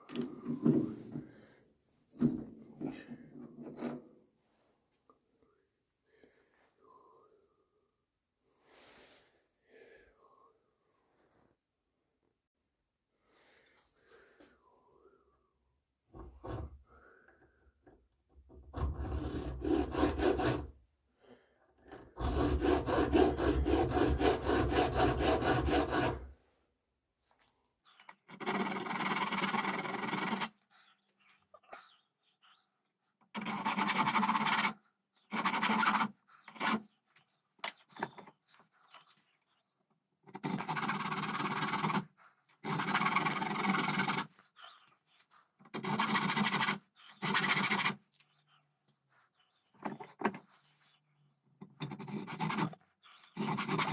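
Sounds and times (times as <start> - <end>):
hand file rasping on metal: 18.7 - 20.8, 22.0 - 26.4, 28.3 - 30.6, 33.3 - 37.0, 40.3 - 44.4, 45.6 - 48.0, 51.7 - 53.9.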